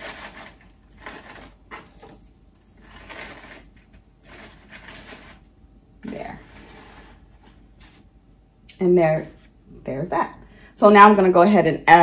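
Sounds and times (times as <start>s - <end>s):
paper shred rustling: 0.0s - 8.1s.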